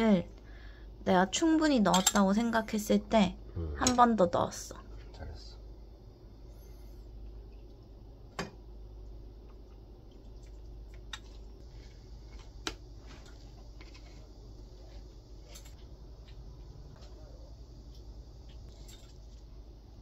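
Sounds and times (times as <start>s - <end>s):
metal utensils clinking on pot: 1.9s - 2.2s.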